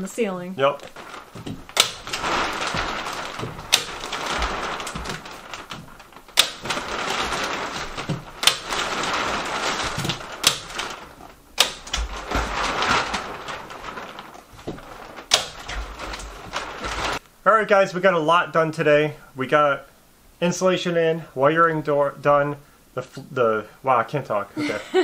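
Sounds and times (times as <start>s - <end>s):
plastic sheeting rustling: 0.1s - 17.2s.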